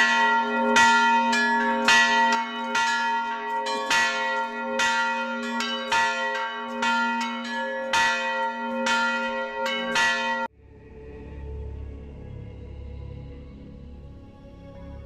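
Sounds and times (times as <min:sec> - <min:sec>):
church bells ringing: 0:00.0 - 0:10.5
soft ambient music: 0:10.5 - 0:15.0.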